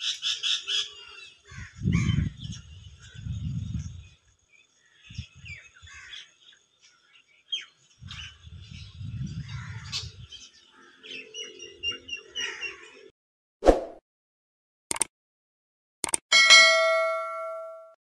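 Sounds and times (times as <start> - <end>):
birds chirping: 0.0 - 13.1
low rumbles on microphone: 8.0 - 10.3.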